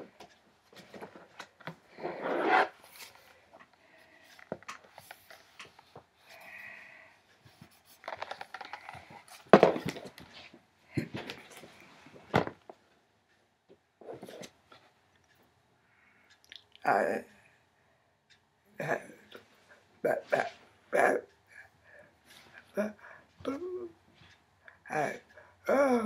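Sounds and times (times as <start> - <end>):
book pages rustling and flapping: 4.4 - 6.1, 7.6 - 12.8
book thumps: 9.5 - 10.2, 12.3 - 12.6.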